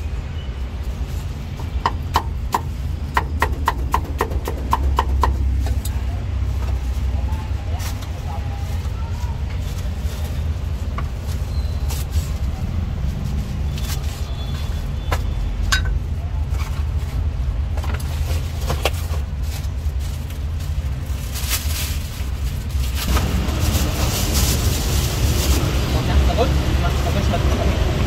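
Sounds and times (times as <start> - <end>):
street traffic rumble: 0.0 - 28.0
plastic bag rustling: 6.4 - 14.9, 16.0 - 26.0.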